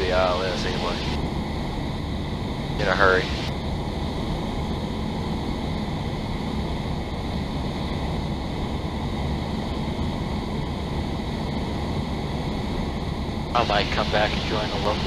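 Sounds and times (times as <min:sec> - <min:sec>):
airflow noise: 0:00.0 - 0:15.0
airplane engine and propeller drone: 0:00.0 - 0:15.0.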